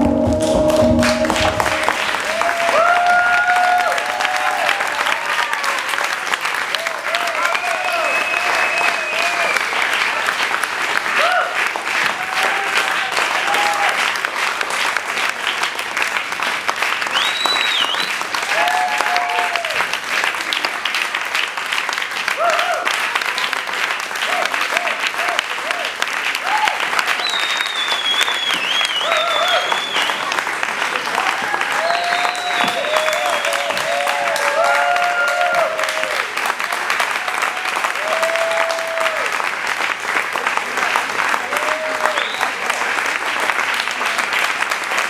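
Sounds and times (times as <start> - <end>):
crowd calling out: 0.0 - 5.8
audience applauding: 0.0 - 45.0
person cheering: 1.2 - 5.9, 11.2 - 11.6, 12.2 - 14.0, 18.5 - 19.8, 22.4 - 22.9, 31.2 - 36.3, 37.2 - 39.3
high whistle: 7.9 - 9.7, 17.2 - 18.2, 27.2 - 30.2, 31.8 - 33.9.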